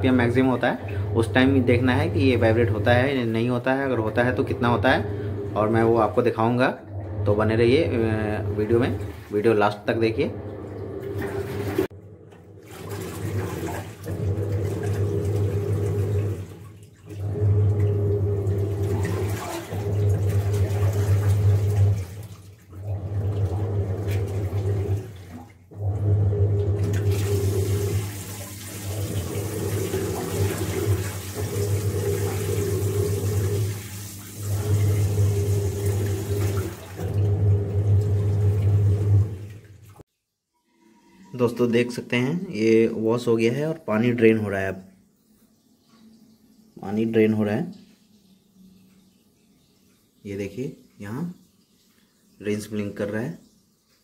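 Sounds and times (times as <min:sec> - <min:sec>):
washing machine motor hum: 0:00.0 - 0:40.0
water sloshing: 0:00.0 - 0:40.1.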